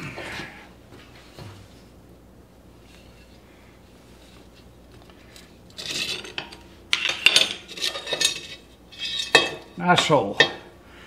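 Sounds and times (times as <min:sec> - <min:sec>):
steel tube clattering on metal: 0:05.8 - 0:10.7.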